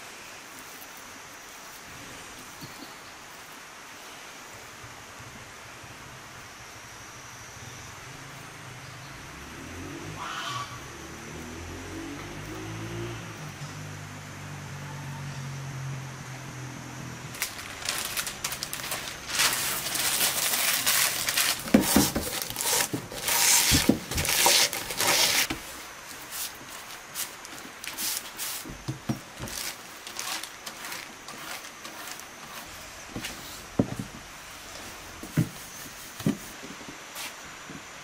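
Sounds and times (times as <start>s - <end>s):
knife cutting paper: 17.4s - 28.7s, 29.4s - 32.9s
paper crinkling and rustling: 17.4s - 33.6s.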